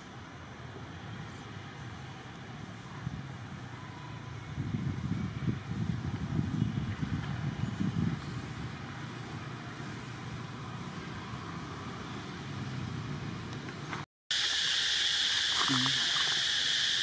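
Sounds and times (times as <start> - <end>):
low wind-like rumble: 2.8 - 9.7
loud high insect buzz: 14.3 - 17.0
faint high insect tone: 14.4 - 17.0.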